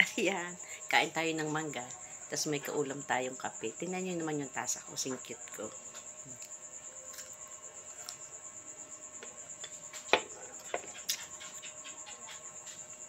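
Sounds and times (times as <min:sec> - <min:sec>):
cricket trill: 0:00.0 - 0:13.0
crunchy chewing: 0:05.9 - 0:08.4.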